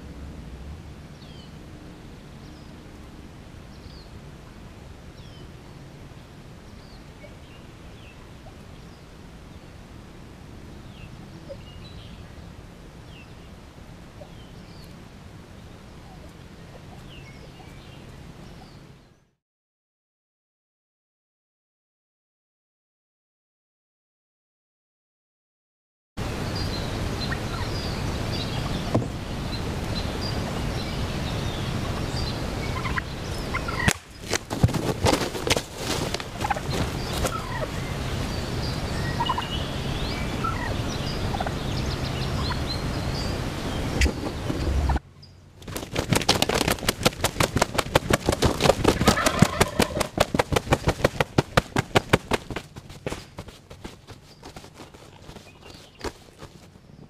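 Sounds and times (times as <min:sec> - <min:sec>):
turkeys gobbling: 0:32.7 - 0:37.8, 0:39.2 - 0:39.5, 0:40.4 - 0:40.7, 0:41.3 - 0:41.5, 0:45.7 - 0:53.6.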